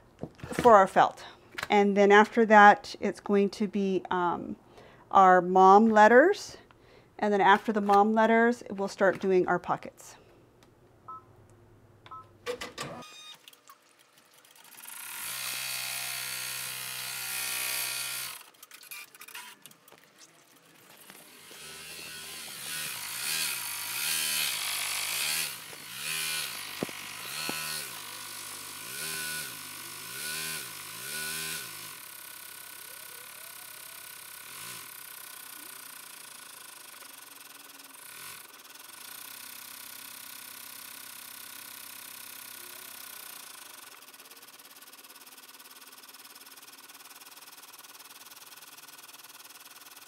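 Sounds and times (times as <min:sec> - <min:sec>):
embroidery machine stitching: 0:14.5 - 0:19.7, 0:21.0 - 0:50.0.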